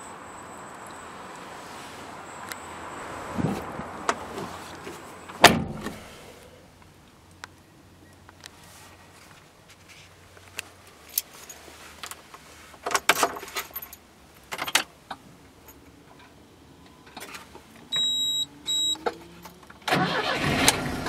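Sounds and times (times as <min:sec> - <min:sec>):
short high electronic beeps: 0:17.9 - 0:19.0.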